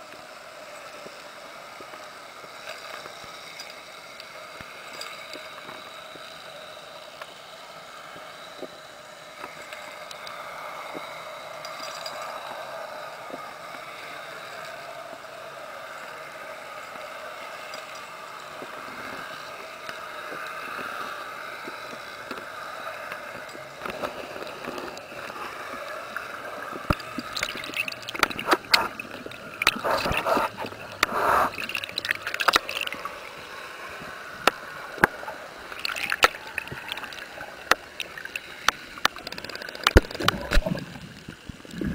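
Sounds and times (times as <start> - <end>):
underwater hiss: 0.1 - 41.9
air bubbles gurgling: 22.8 - 41.9.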